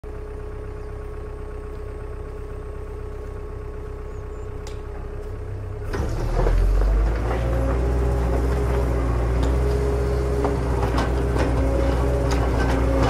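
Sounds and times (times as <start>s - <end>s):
simulated engine idling: 0.0s - 7.1s.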